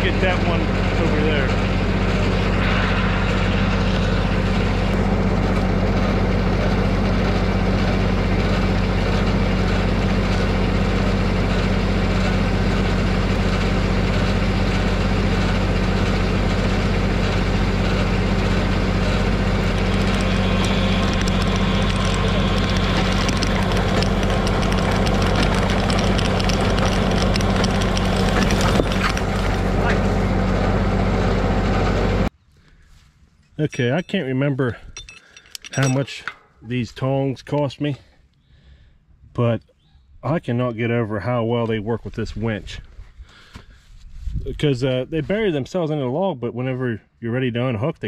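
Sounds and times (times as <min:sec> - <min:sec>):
tractor diesel engine running: 0:00.0 - 0:38.0.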